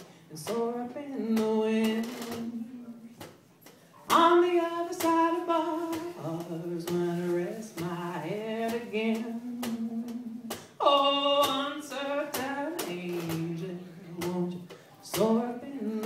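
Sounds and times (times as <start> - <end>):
woman singing long notes: 4.1 - 16.0.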